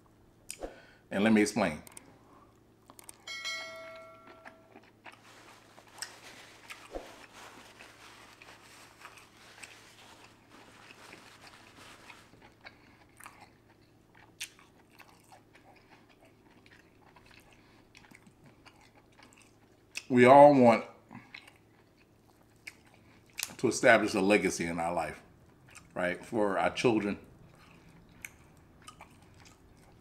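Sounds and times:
person chewing and biting: 0:02.8 - 0:03.3, 0:04.3 - 0:20.1, 0:21.2 - 0:23.6, 0:27.4 - 0:30.0
short ringing tone: 0:03.3 - 0:04.7.

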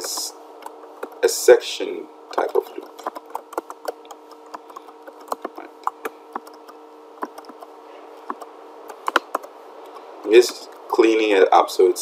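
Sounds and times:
computer keyboard typing: 0:00.0 - 0:01.2, 0:02.4 - 0:10.8
faint steady hum: 0:00.0 - 0:12.0.

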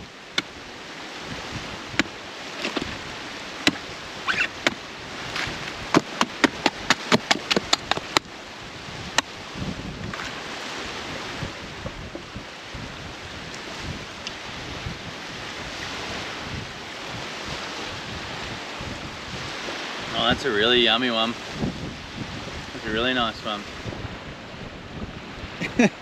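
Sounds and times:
hand axe chopping coconut husk: 0:01.9 - 0:03.0, 0:03.6 - 0:08.3.

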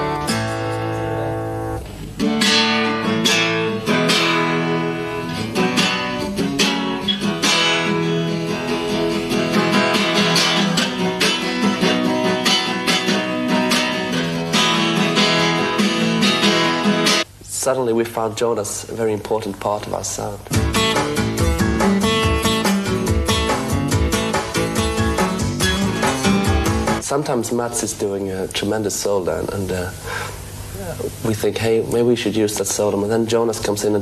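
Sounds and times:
acoustic guitar strumming: 0:00.0 - 0:17.3, 0:20.5 - 0:27.2.

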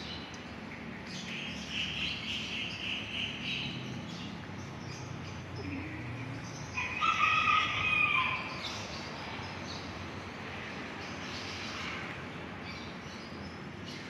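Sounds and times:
outdoor background noise: 0:00.0 - 0:14.0
rooster crowing: 0:06.8 - 0:08.6.

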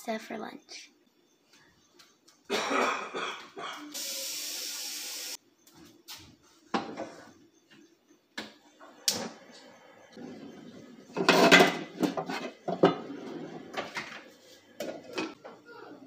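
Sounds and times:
water running from tap: 0:04.0 - 0:05.4
pot clattering: 0:11.2 - 0:13.0.

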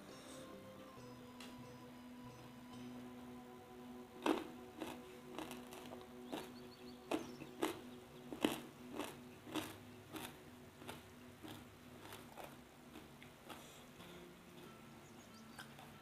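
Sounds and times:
person chewing crunchy food: 0:04.2 - 0:14.1, 0:15.6 - 0:16.0.

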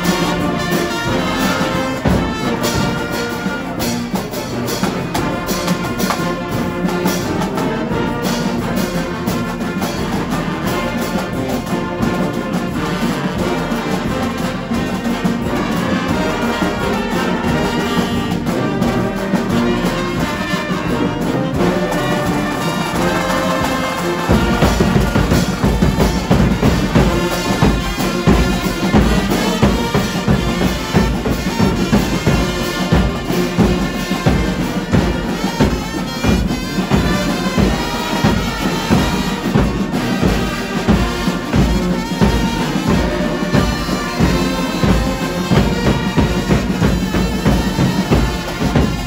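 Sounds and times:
brass band playing: 0:00.0 - 0:49.0.

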